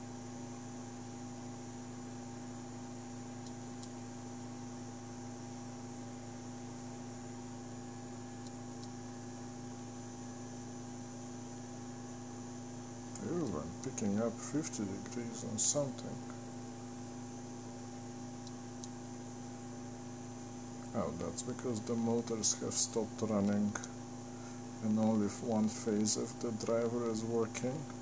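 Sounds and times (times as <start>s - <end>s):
small cooling fan: 0.0s - 28.0s
stepper motors humming: 13.1s - 16.5s, 20.8s - 28.0s.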